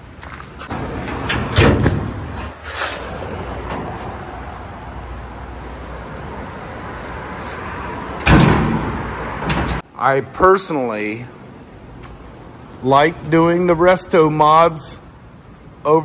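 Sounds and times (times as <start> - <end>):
workshop background rumble: 0.2 - 4.5
car door slamming shut: 8.2 - 9.8.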